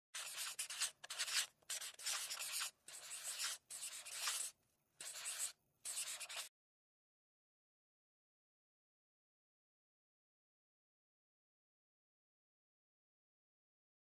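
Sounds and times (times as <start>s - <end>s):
pencil scratching on paper: 0.1s - 6.5s.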